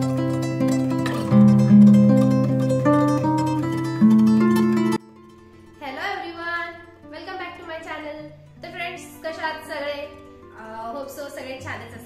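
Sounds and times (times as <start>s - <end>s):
plucked-string melody over bass: 0.0s - 5.8s.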